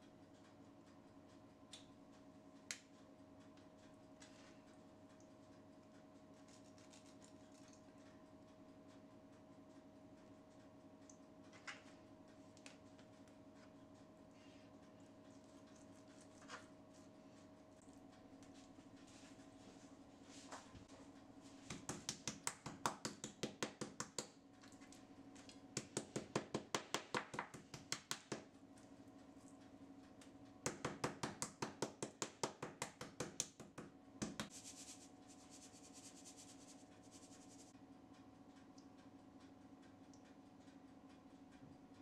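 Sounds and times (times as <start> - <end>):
soft hiss: 34.4 - 37.8.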